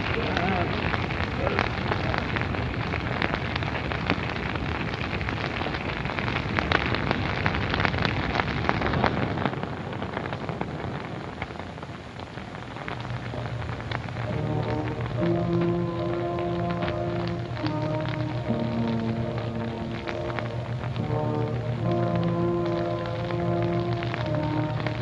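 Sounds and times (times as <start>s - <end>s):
brush fire crackling and popping: 0.0s - 25.0s.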